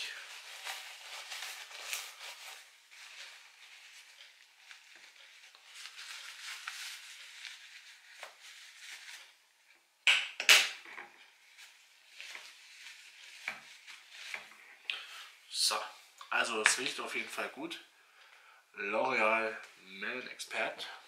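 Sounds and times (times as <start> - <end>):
paper tissue rustling: 0.0 - 9.6, 11.2 - 15.3.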